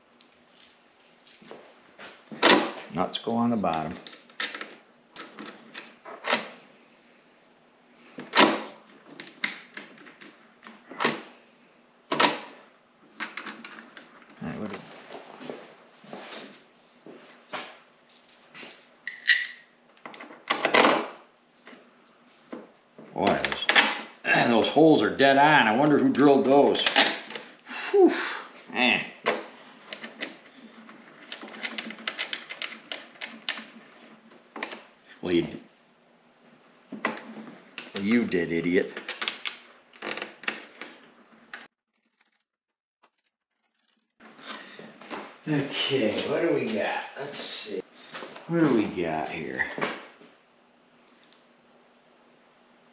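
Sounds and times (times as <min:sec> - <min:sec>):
metal fasteners clicking and knocking: 0:31.1 - 0:33.8.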